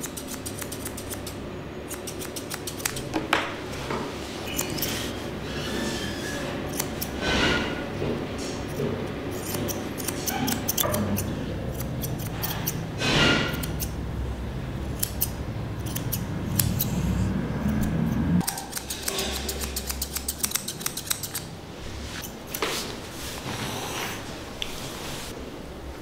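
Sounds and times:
scissors snipping fur: 0:00.0 - 0:03.1, 0:04.5 - 0:05.0, 0:06.7 - 0:07.2, 0:08.7 - 0:12.8, 0:13.4 - 0:14.0, 0:14.9 - 0:21.5.

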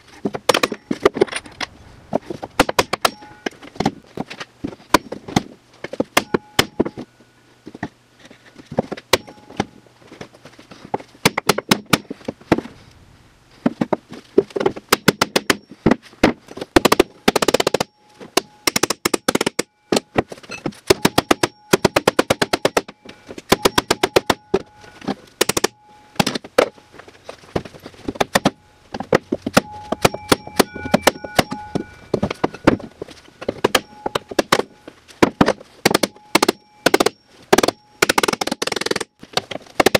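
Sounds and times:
metal ringing: 0:00.5 - 0:01.8, 0:02.6 - 0:03.9, 0:06.2 - 0:07.3, 0:09.1 - 0:09.8, 0:17.1 - 0:39.2
hammer pounding on metal: 0:20.9 - 0:24.8, 0:28.2 - 0:39.2.

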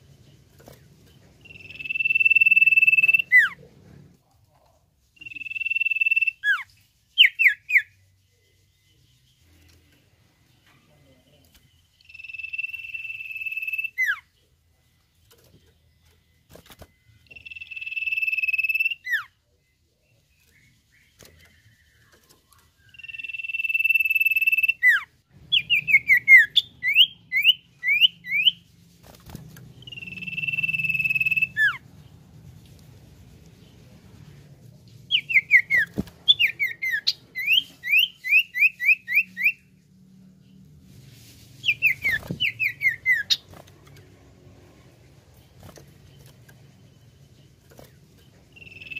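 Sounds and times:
bird whistling: 0:01.4 - 0:03.6, 0:05.2 - 0:06.6, 0:12.0 - 0:14.2, 0:17.3 - 0:19.3, 0:22.8 - 0:28.6, 0:29.8 - 0:31.8, 0:35.1 - 0:39.6, 0:41.6 - 0:43.4, 0:48.6 - 0:48.9.

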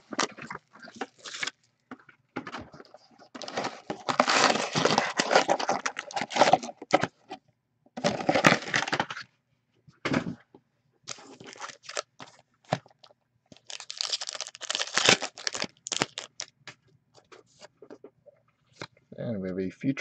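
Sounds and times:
foil wrapper tearing and crinkling: 0:01.0 - 0:01.5, 0:03.4 - 0:06.8, 0:08.0 - 0:09.2, 0:11.1 - 0:12.3, 0:13.6 - 0:16.5
cards snapping and rustling: 0:13.6 - 0:16.5.

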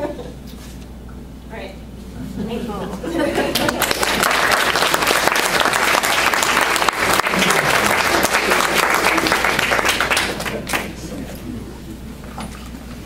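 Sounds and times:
audience applauding: 0:03.4 - 0:11.1.

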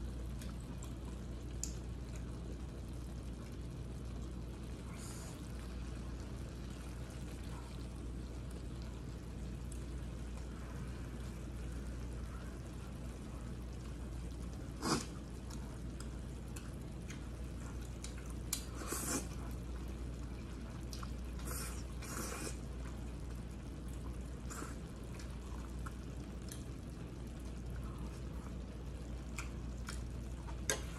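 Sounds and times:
steady low hum: 0:00.0 - 0:30.9
wet mouth eating sounds: 0:14.7 - 0:19.6, 0:29.2 - 0:30.9
slurping noodles: 0:14.8 - 0:15.2, 0:18.7 - 0:19.4, 0:21.4 - 0:22.7.

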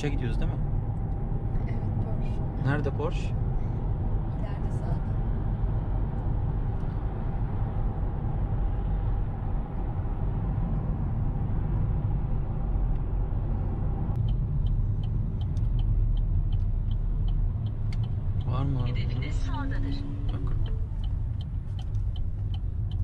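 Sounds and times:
tyre and engine rumble: 0:00.0 - 0:23.0
turn signal ticking: 0:06.0 - 0:23.0.

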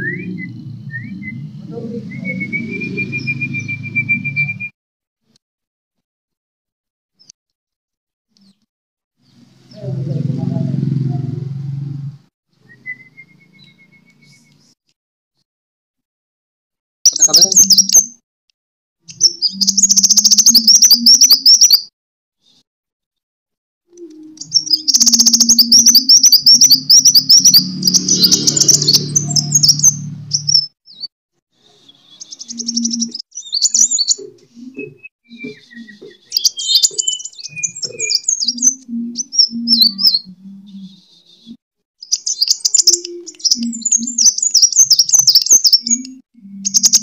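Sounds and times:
bird twittering trills: 0:00.0 - 0:04.6, 0:19.1 - 0:21.9, 0:24.4 - 0:31.1, 0:32.1 - 0:41.0, 0:42.0 - 0:47.0.

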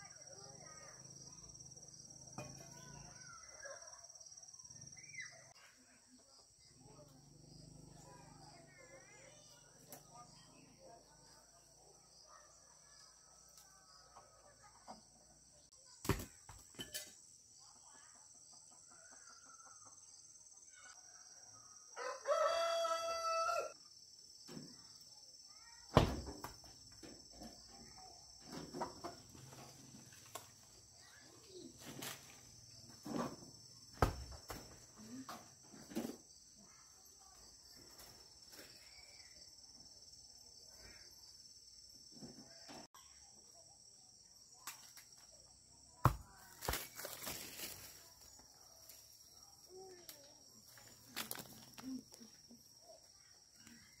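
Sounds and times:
rooster crowing: 0:22.0 - 0:23.8.

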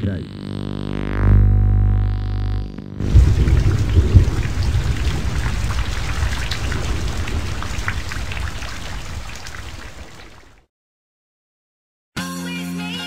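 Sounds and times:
heavy rain: 0:03.0 - 0:10.6
low rumble of thunder: 0:03.0 - 0:10.6.

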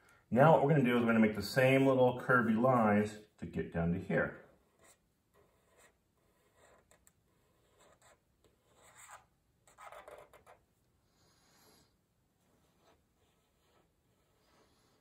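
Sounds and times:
marker scratching on paper: 0:04.5 - 0:10.6, 0:12.4 - 0:15.0.

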